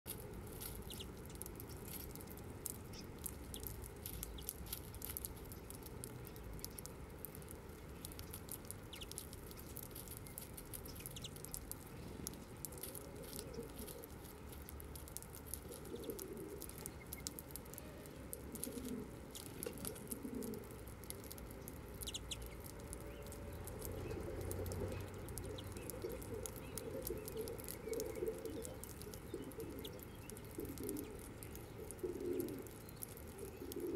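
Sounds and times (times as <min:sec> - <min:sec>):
beaks pecking and husking seed: 0:00.1 - 0:33.9
dove cooing: 0:12.9 - 0:14.2, 0:15.6 - 0:16.9, 0:17.8 - 0:20.8, 0:24.0 - 0:33.9.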